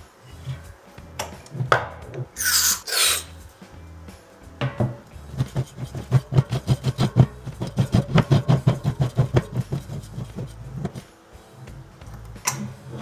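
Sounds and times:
metal threads grating: 0:02.3 - 0:03.5.

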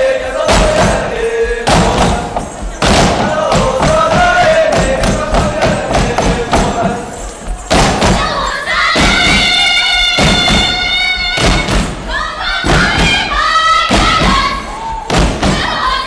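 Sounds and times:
group singing long held notes: 0:00.0 - 0:16.0
heavy drum thump: 0:00.5 - 0:07.0, 0:07.7 - 0:08.4, 0:10.2 - 0:15.8.

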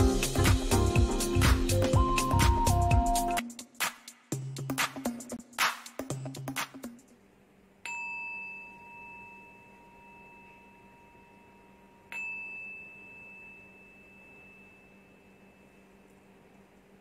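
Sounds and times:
small metal chime ringing: 0:07.8 - 0:16.3.

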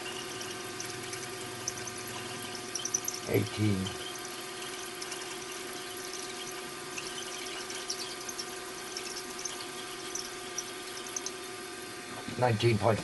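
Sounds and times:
milling machine motor hum: 0:00.0 - 0:12.0
faint high ticks: 0:04.0 - 0:11.4.

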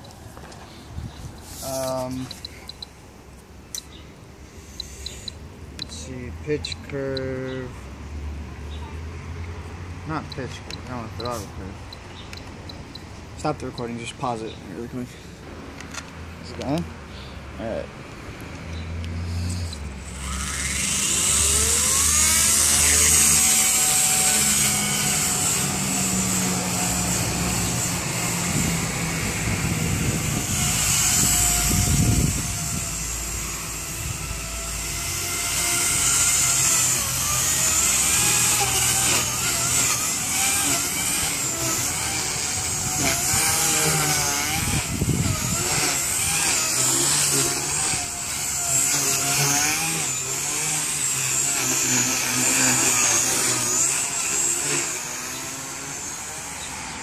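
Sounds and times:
rc helicopter rotor whine: 0:03.7 - 0:07.3, 0:19.2 - 0:57.0.

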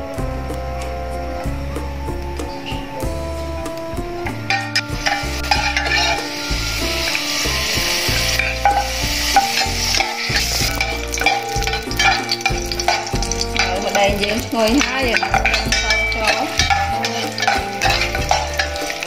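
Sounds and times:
background music: 0:00.0 - 0:19.0
garlic sizzling in hot oil: 0:04.4 - 0:19.0
metal spoon stirring in pot: 0:04.5 - 0:19.0.

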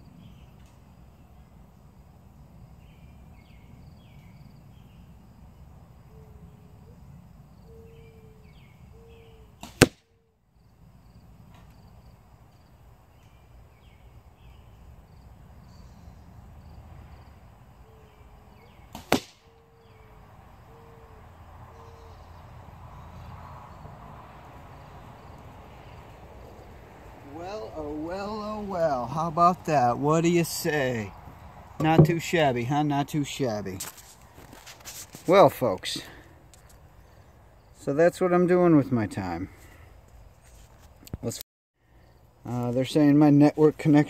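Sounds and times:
faint outdoor background: 0:00.0 - 0:44.0
arrows striking target: 0:09.6 - 0:10.1, 0:18.9 - 0:19.5, 0:31.8 - 0:32.2.

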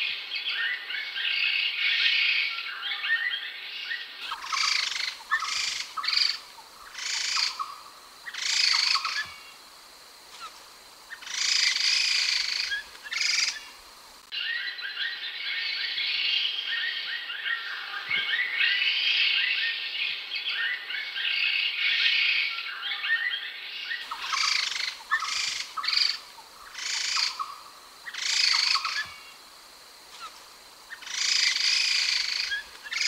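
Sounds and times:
laughingthrush chattering song: 0:24.1 - 0:29.0.

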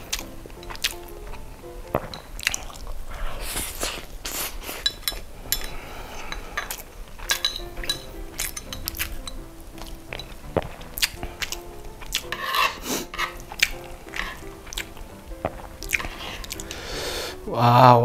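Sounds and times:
soft eating noises: 0:00.0 - 0:17.9
chopsticks clicking on plate: 0:06.6 - 0:14.9.

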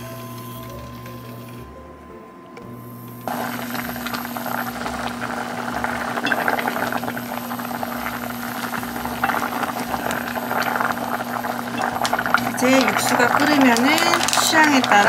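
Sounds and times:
steady low hum: 0:00.0 - 0:15.0
broth boiling and bubbling: 0:02.7 - 0:15.0
wooden spoon stirring: 0:03.3 - 0:15.0.

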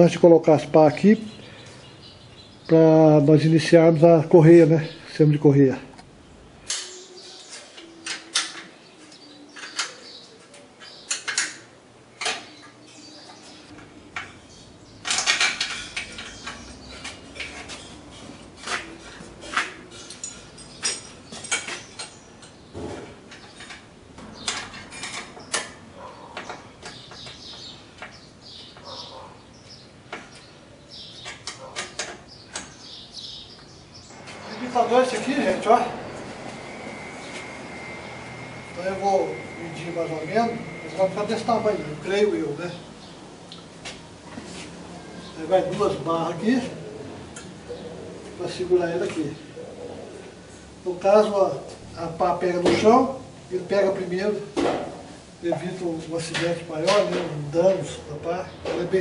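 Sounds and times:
wrenches clinking on metal tubing: 0:15.0 - 0:22.6.

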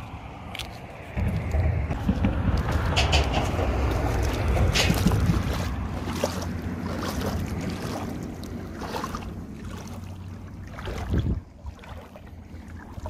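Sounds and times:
wind rumbling on microphone: 0:00.0 - 0:13.0
lake water splashing: 0:02.7 - 0:13.0.

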